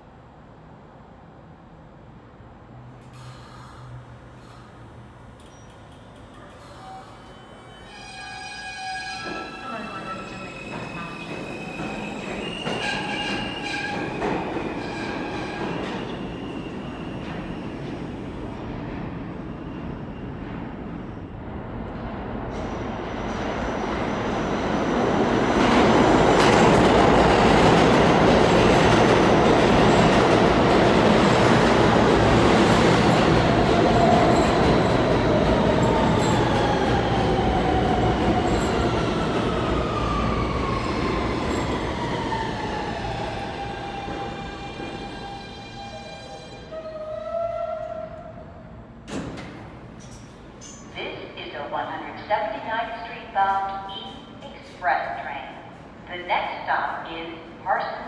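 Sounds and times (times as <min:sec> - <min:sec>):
subway wheel and rail noise: 0:00.0 - 0:58.0.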